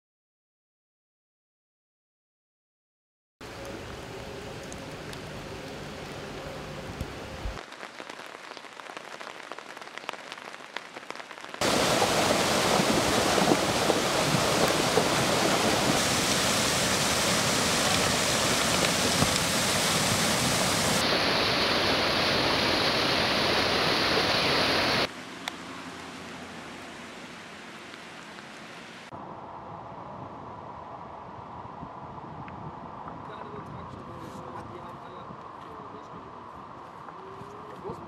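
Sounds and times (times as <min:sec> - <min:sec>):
rain falling: 0:03.4 - 0:29.1
rushing floodwater torrent: 0:03.4 - 0:29.1.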